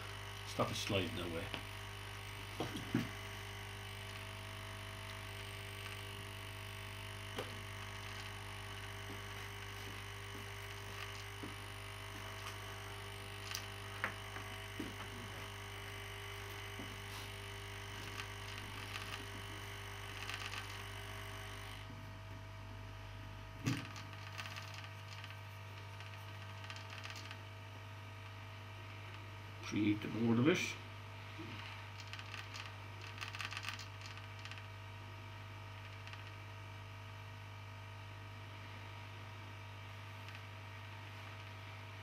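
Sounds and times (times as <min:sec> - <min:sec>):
hot air station hum and hiss: 0:07.3 - 0:22.1.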